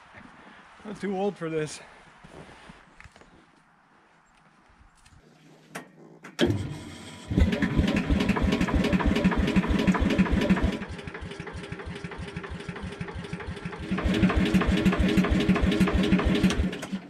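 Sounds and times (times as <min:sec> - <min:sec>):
small engine cranking and running: 0:06.4 - 0:17.0.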